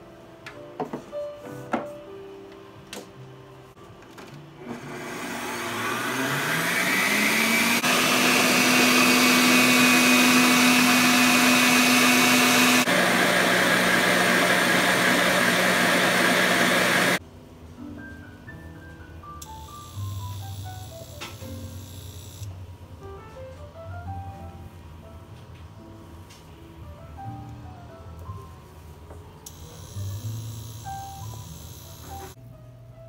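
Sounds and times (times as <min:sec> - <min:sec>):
stand mixer whisking: 0:04.8 - 0:17.2.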